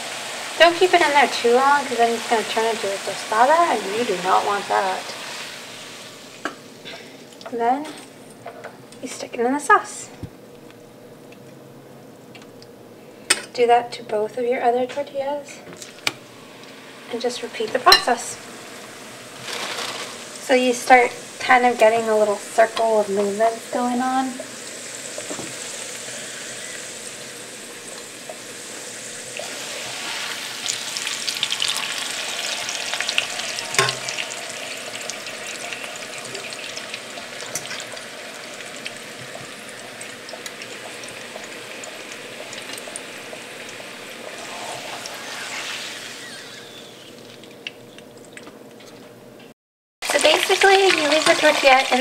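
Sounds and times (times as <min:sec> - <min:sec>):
tortillas sizzling in oil: 0:00.0 - 0:07.2, 0:17.8 - 0:47.7, 0:50.0 - 0:52.0.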